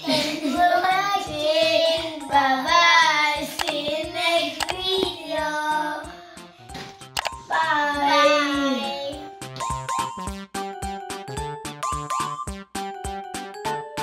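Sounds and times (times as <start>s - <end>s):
child singing: 0.0s - 6.1s, 7.5s - 9.2s
sharp clicks: 3.6s - 3.8s, 4.6s - 4.8s, 7.1s - 7.4s.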